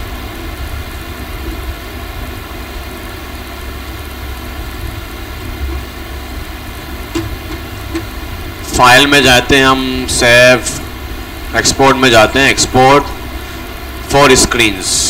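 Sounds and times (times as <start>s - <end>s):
faint hum: 0.0s - 15.0s
steady hiss: 0.0s - 15.0s
low rumble: 7.1s - 14.1s.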